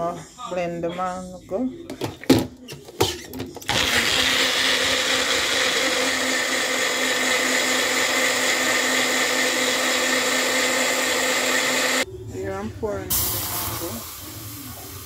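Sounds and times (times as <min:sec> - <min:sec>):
blender whirring: 0:03.6 - 0:12.0.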